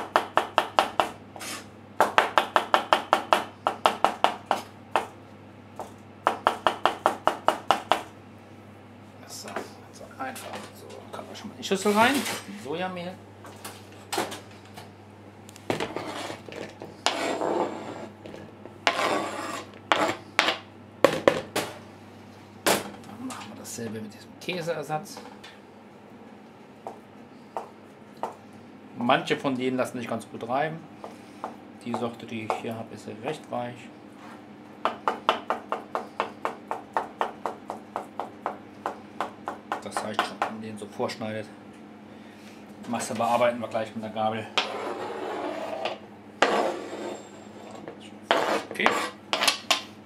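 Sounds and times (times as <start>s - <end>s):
knife scraping cutting board: 1.4s - 1.7s, 15.7s - 20.3s, 44.6s - 49.7s
knife chopping on cutting board: 48.3s - 49.8s.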